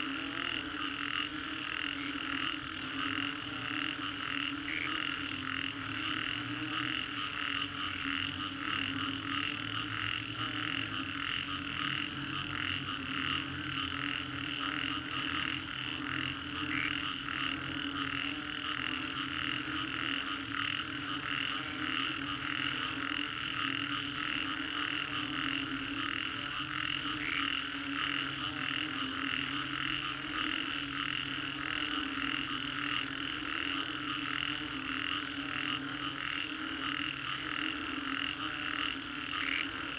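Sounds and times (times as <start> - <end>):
chorus of frogs calling: 0.0 - 39.9
deep pulsing frog croak: 0.0 - 39.9.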